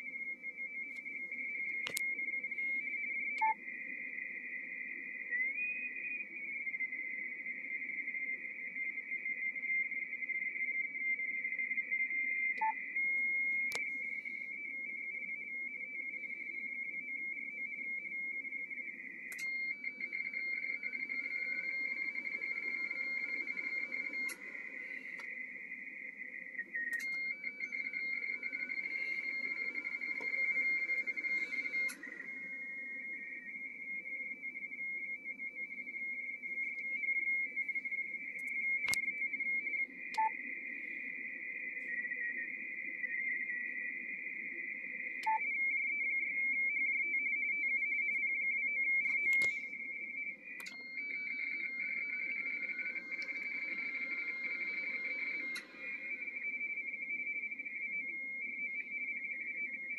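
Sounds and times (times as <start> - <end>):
click: 1.7 - 2.1, 13.7 - 13.9, 19.3 - 19.6, 24.2 - 24.4, 25.1 - 25.3, 26.8 - 27.2, 31.8 - 32.1, 38.4 - 39.1, 40.1 - 40.3, 49.0 - 49.7, 50.6 - 50.8, 53.2 - 53.4, 55.4 - 55.8
warbling data tone: 18.9 - 34.7, 50.6 - 59.9.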